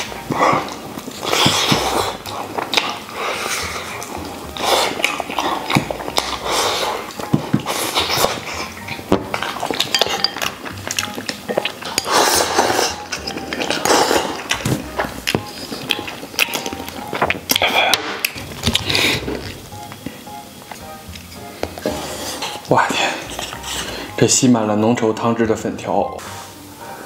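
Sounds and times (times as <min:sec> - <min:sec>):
chewing and loud sucking: 0:00.0 - 0:24.2
slurp from bowl: 0:00.3 - 0:10.2, 0:11.8 - 0:14.7.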